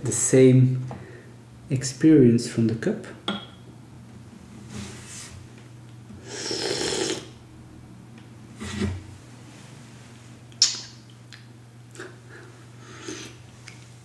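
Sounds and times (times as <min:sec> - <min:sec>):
loud slurp of coffee: 0:06.2 - 0:07.3.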